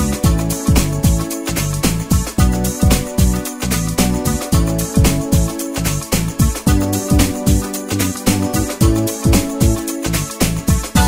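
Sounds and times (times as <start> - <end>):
music with deep beat and held tones: 0.0 - 11.0.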